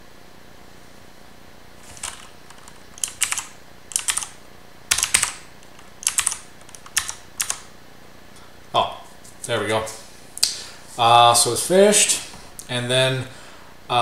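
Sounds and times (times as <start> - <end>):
mechanical keyboard clicks: 1.9 - 4.3, 4.9 - 7.7.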